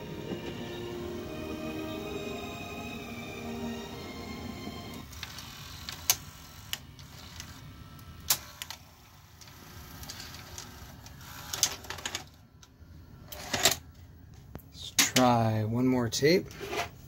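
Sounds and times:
motor and gear whirring: 0:00.0 - 0:12.4.

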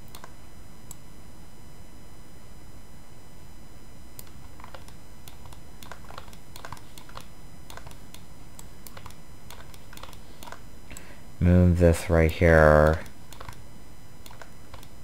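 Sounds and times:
computer keys clicking: 0:00.0 - 0:01.0, 0:04.2 - 0:11.1, 0:12.2 - 0:13.6, 0:14.2 - 0:15.0
steady background hiss: 0:00.0 - 0:15.0.

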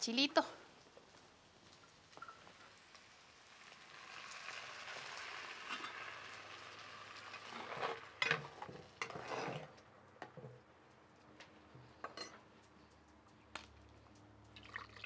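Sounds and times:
salsa sizzling in a clay pot: 0:01.3 - 0:09.8
spatula scraping a clay pot: 0:09.0 - 0:09.8.

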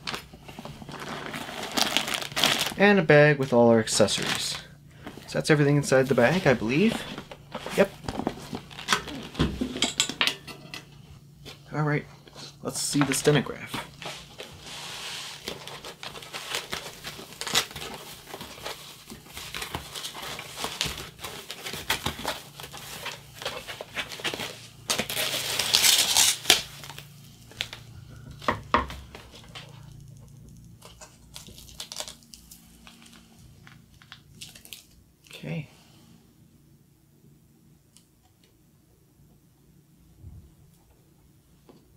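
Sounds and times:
plastic wrapping crinkling: 0:00.0 - 0:02.8, 0:06.0 - 0:09.4, 0:13.1 - 0:35.0.

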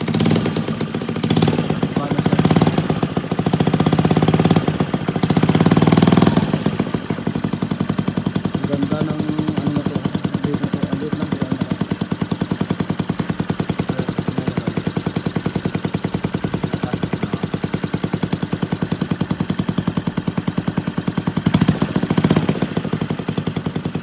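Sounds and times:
scooter engine idling: 0:00.0 - 0:24.0.

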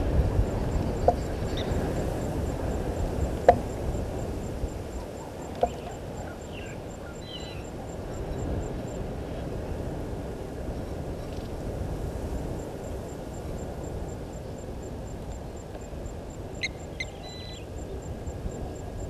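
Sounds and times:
wind noise: 0:00.0 - 0:19.0
faint high bird chirps: 0:05.0 - 0:08.5, 0:16.6 - 0:18.1.

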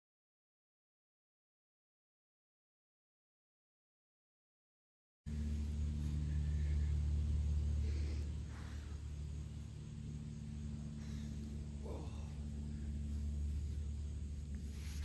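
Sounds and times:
low mechanical hum: 0:05.3 - 0:15.0.

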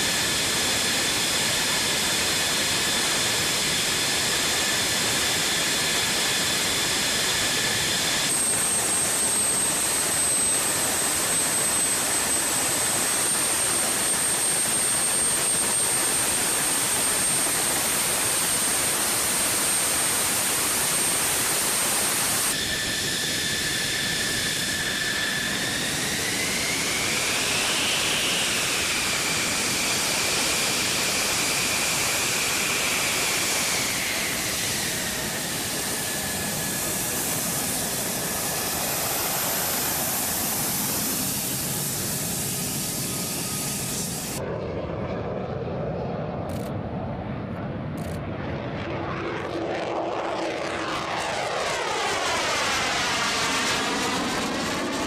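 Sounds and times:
jet engine rush with high whine: 0:00.0 - 0:55.0.

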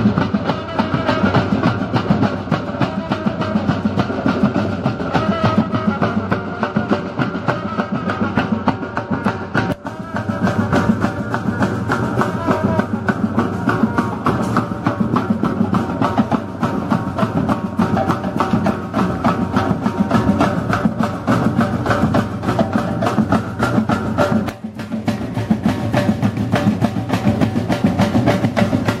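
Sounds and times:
street drummers playing fast beat: 0:00.0 - 0:29.0.

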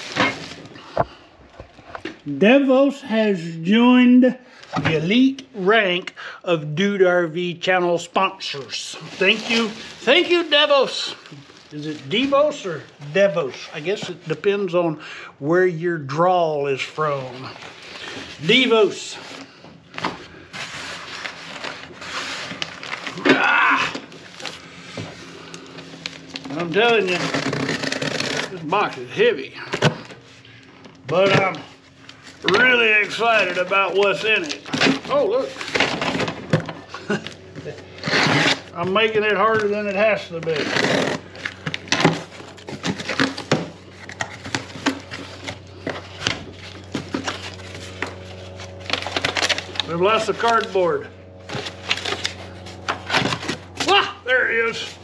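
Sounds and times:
cardboard scrapes and crinkles: 0:08.8 - 0:14.3, 0:20.2 - 0:23.2, 0:24.0 - 0:29.1, 0:37.1 - 0:39.7, 0:40.5 - 0:50.8
cardboard scraping on steel: 0:20.4 - 0:23.2, 0:24.0 - 0:29.0, 0:37.8 - 0:38.8.

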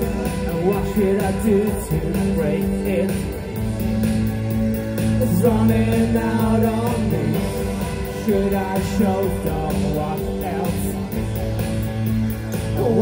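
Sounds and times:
man singing: 0:00.0 - 0:03.6, 0:05.1 - 0:11.4, 0:12.6 - 0:13.0
live post-punk band playing: 0:00.0 - 0:13.0
steady drum beat: 0:00.0 - 0:13.0.

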